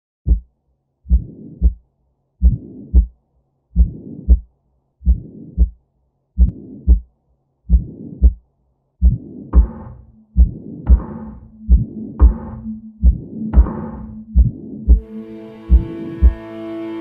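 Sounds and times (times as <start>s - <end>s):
heartbeat thumps: 0.2s - 0.5s, 1.1s - 1.8s, 2.4s - 3.1s, 3.8s - 4.4s, 5.0s - 5.8s, 6.4s - 7.1s, 7.7s - 8.4s, 9.0s - 15.1s, 15.7s - 16.4s.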